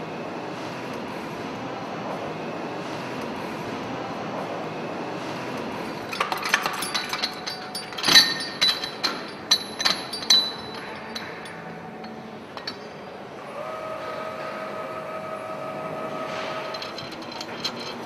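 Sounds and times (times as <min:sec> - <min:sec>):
steady hum: 0:00.0 - 0:18.0
metal tool clinking and knocking: 0:06.1 - 0:13.0, 0:16.3 - 0:18.0.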